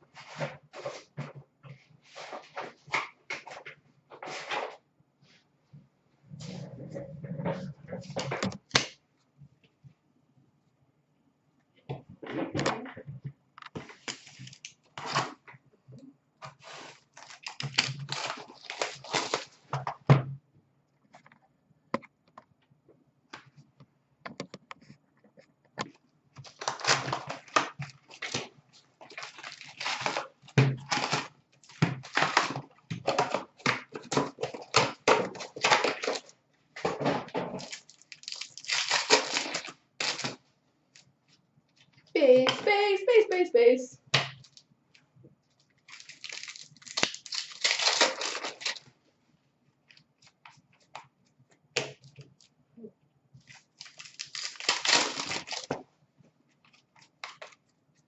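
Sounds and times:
card packs tearing open: 0:16.6 - 0:19.6, 0:26.4 - 0:36.3, 0:37.6 - 0:40.4, 0:45.8 - 0:48.9, 0:53.5 - 0:55.8
wrappers crinkling: 0:16.6 - 0:19.7, 0:26.4 - 0:36.3, 0:37.6 - 0:40.4, 0:45.6 - 0:48.9, 0:53.4 - 0:55.8.

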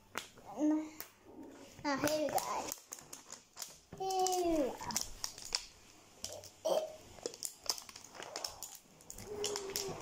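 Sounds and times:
plastic film crinkling: 0:01.8 - 0:10.0
child's vocal sound: 0:09.2 - 0:10.0.

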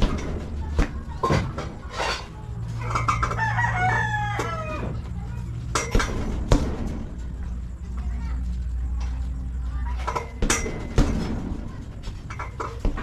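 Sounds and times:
rooster crowing: 0:03.1 - 0:05.1.

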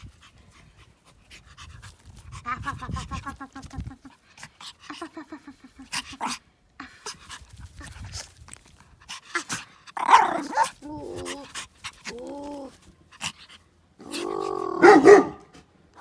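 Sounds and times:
puppy rustling in grass: 0:07.1 - 0:13.6
puppy short loud bark: 0:14.8 - 0:15.5.

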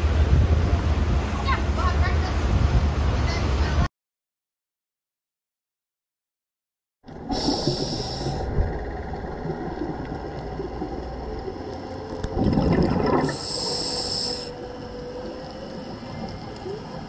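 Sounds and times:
exhaled bubbles: 0:07.1 - 0:17.0
low underwater rumble: 0:07.1 - 0:17.0
regulator inhalation hiss: 0:07.3 - 0:08.5, 0:13.3 - 0:14.6.

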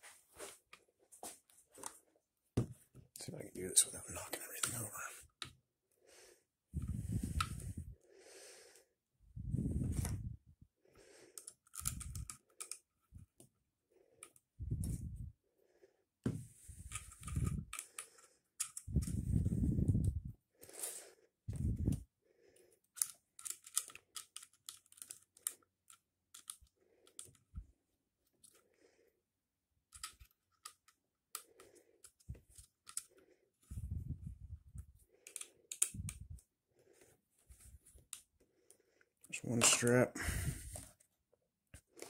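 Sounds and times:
plastic and metal parts clicking: 0:11.4 - 0:13.0, 0:16.8 - 0:19.2, 0:22.8 - 0:27.5, 0:29.8 - 0:33.2, 0:35.2 - 0:36.4.

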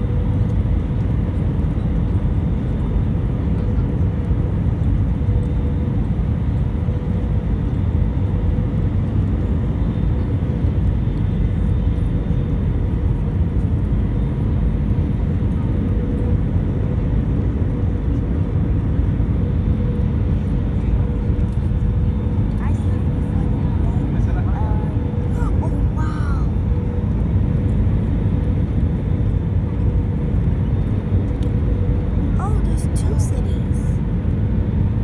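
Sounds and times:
jet engine rumble: 0:00.0 - 0:35.0
steady cabin hum: 0:18.5 - 0:35.0.

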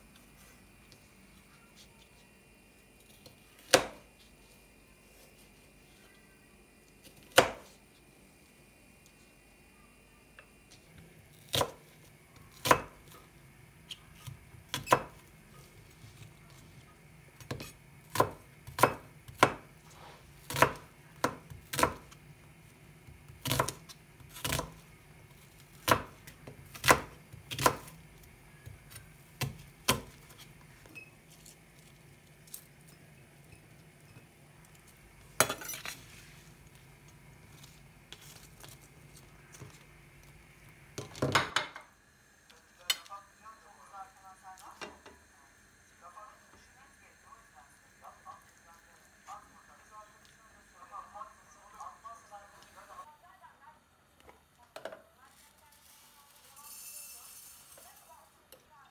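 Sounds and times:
faint low hum: 0:00.0 - 0:19.9, 0:41.8 - 0:56.6
utensils and dishes clinking: 0:56.4 - 0:58.1.

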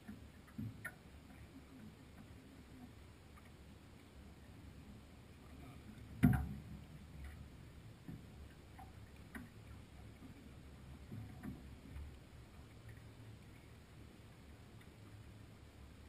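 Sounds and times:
knocks and clicks aboard yacht: 0:00.0 - 0:02.9, 0:05.9 - 0:12.2
low steady rumble: 0:00.0 - 0:16.0.

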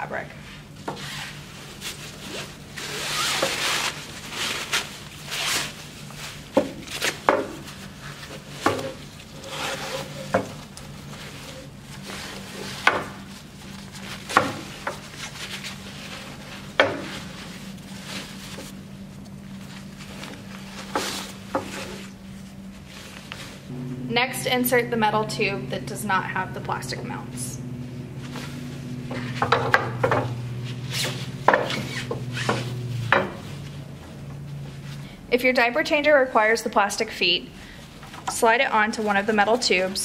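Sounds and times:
steady low hum: 0:00.0 - 0:40.0
fabric rustling over metal tube: 0:00.6 - 0:24.3.

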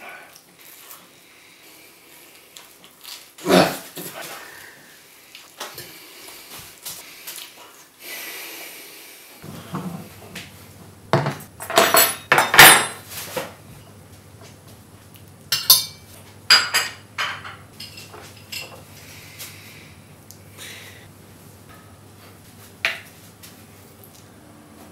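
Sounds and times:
plates clattering on wooden table: 0:09.4 - 0:10.5, 0:11.1 - 0:13.5, 0:15.6 - 0:18.8
knife and fork clinking on plate: 0:15.5 - 0:18.8.

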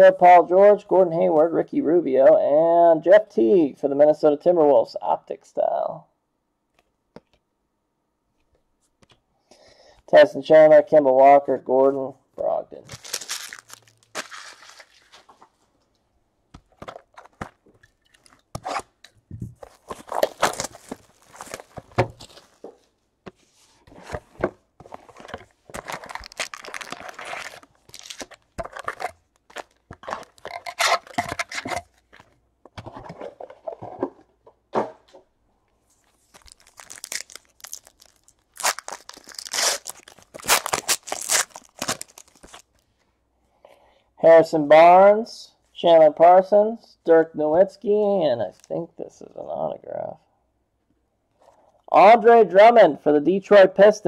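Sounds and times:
cardboard box crunching and rustling: 0:12.9 - 0:15.3, 0:19.6 - 0:22.6, 0:25.0 - 0:31.6, 0:36.3 - 0:42.6
foil wrappers crinkling and tearing: 0:12.9 - 0:15.4, 0:19.6 - 0:22.6, 0:25.6 - 0:32.2, 0:36.1 - 0:42.8.

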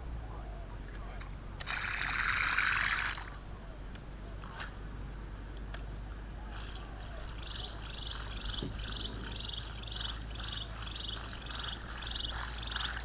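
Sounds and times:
animal buzzy chirps: 0:06.5 - 0:13.0.

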